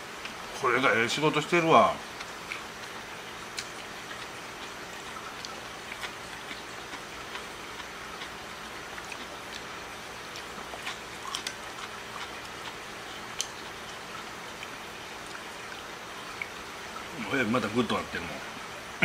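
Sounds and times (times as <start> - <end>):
chewing noodles: 2.0 - 16.6.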